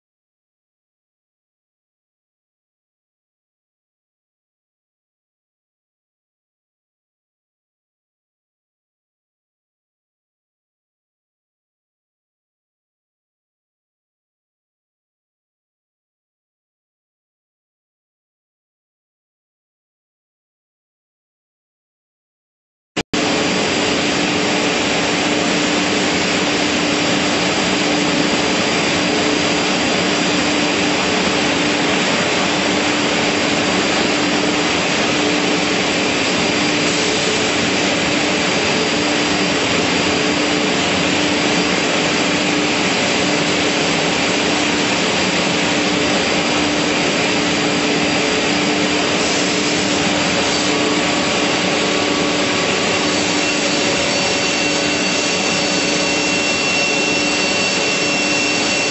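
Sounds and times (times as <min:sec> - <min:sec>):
panel saw running: 0:23.2 - 0:58.9.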